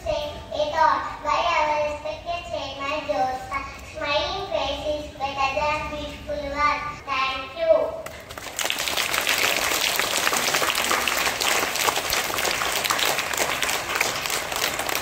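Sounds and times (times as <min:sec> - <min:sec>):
children clapping: 0:08.0 - 0:15.0.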